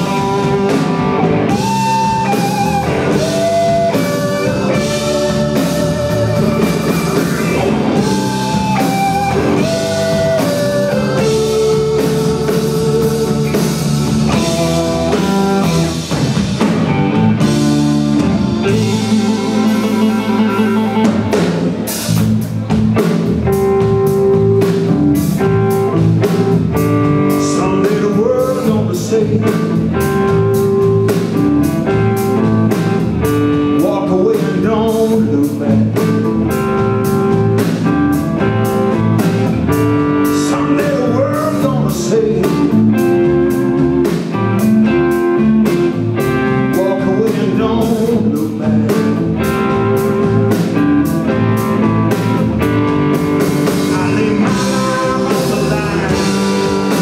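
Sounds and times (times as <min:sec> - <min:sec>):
bass guitar: 0:00.0 - 0:57.0
drum kit beat: 0:00.0 - 0:57.0
electric guitar: 0:00.0 - 0:57.0
organ holding chords: 0:00.0 - 0:57.0
man singing: 0:18.6 - 0:20.8, 0:27.1 - 0:30.7, 0:33.6 - 0:36.6, 0:40.2 - 0:44.4, 0:46.5 - 0:50.6, 0:53.6 - 0:57.0.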